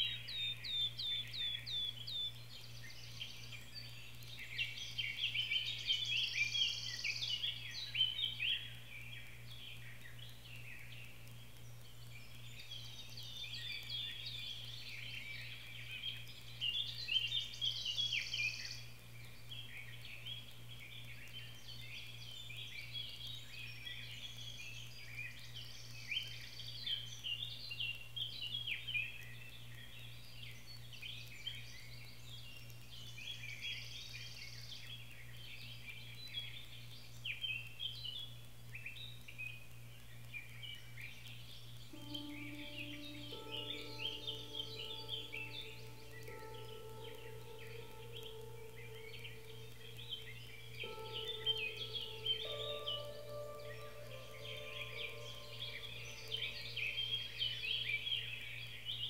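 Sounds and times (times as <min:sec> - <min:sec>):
songbirds chirping: 0:00.0 - 0:59.0
steady low hum: 0:41.7 - 0:59.0.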